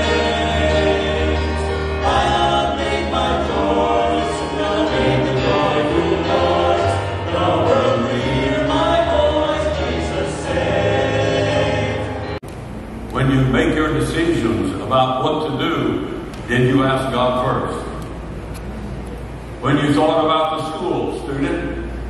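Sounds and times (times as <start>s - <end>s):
male vocal group singing gospel: 0.0s - 12.4s.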